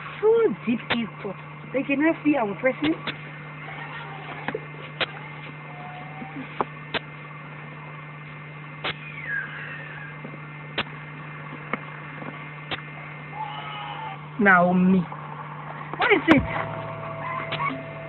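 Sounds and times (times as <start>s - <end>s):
low hum: 0.0s - 18.0s
faint chirp-like glide: 9.0s - 10.2s
sharp clicks: 12.7s - 12.9s.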